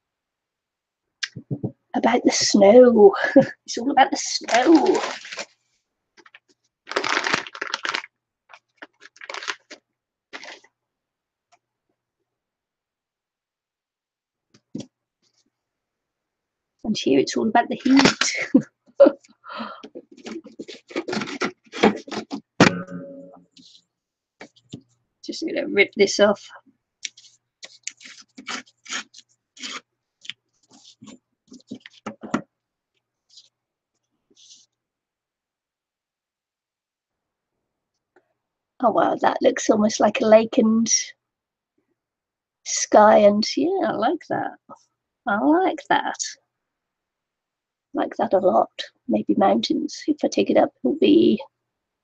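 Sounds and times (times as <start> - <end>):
paper crinkling and rustling: 4.3 - 10.7, 20.0 - 22.4, 27.1 - 32.4
paper tearing along a ruler: 27.2 - 29.8.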